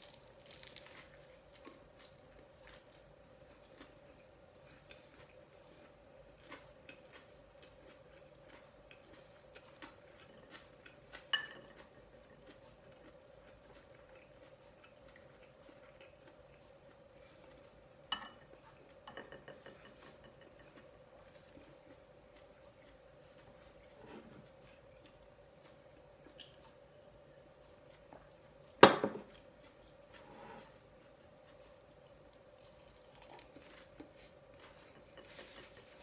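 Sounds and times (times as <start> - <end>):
faint hum: 0.8 - 36.0.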